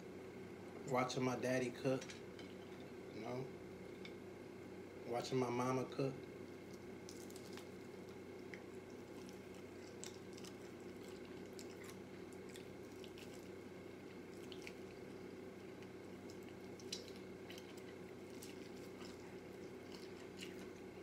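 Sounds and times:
wet chewing and lip-smacking: 6.5 - 21.0.

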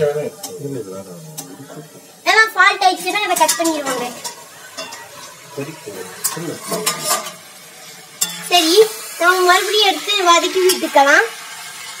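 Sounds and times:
frying sizzle: 0.0 - 12.0
metal spatula scraping pan: 3.1 - 9.2.

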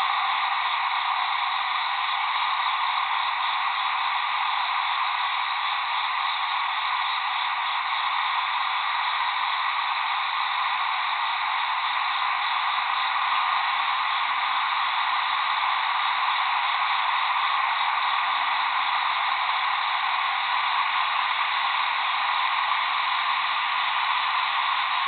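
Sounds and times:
steady night-time background hiss: 0.0 - 25.0.

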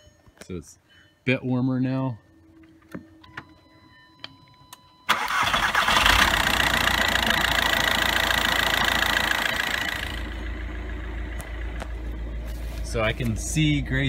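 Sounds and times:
starter motor cranking: 5.1 - 10.3
diesel engine running: 5.1 - 14.0.

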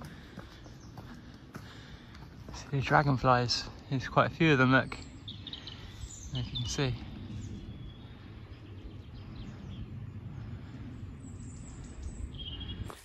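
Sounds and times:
low outdoor rumble: 0.0 - 13.0
bird chirps: 4.5 - 10.0, 11.1 - 13.0.

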